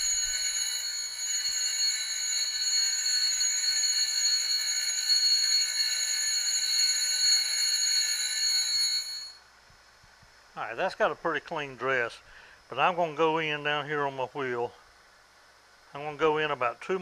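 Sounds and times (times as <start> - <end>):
grinding wheel high-pitched whine: 0.0 - 9.4.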